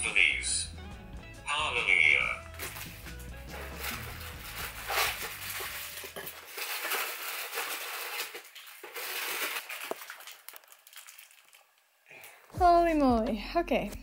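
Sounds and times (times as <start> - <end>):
close crunching and rustling: 2.6 - 11.6.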